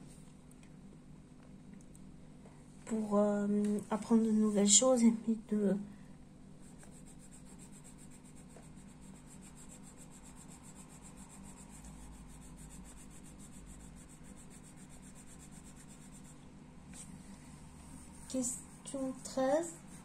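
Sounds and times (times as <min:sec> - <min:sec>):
pencil rubbing on paper: 0:06.6 - 0:20.0.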